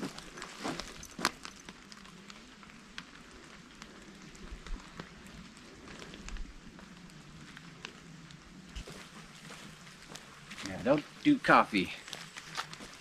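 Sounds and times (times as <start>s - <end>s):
footsteps through wet leaves: 0.0s - 1.6s, 8.8s - 13.0s
light rain patter: 0.0s - 13.0s
twigs crackling: 0.0s - 13.0s.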